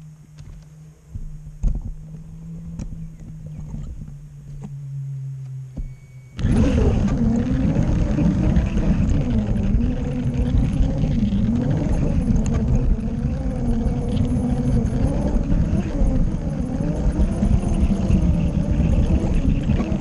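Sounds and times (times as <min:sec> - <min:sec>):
model train motor hum: 0:06.4 - 0:20.0
model train rattling rumble: 0:06.4 - 0:20.0.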